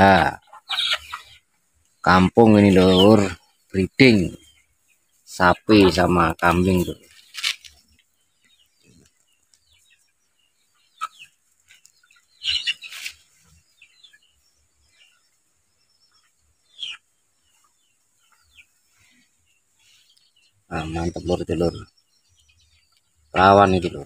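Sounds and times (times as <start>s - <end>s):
animal calls: 0.0s - 1.5s.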